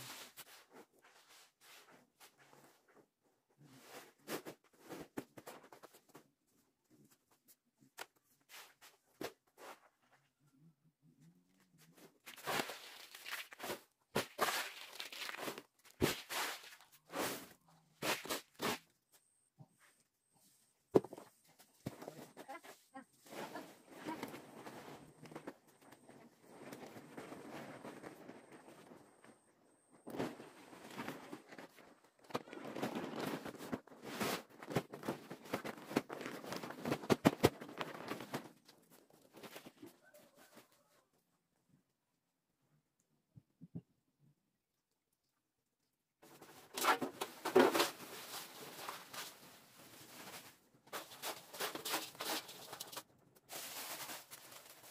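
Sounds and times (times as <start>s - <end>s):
plastic sack rustling: 12.2s - 18.9s, 30.0s - 39.8s, 46.4s - 54.9s.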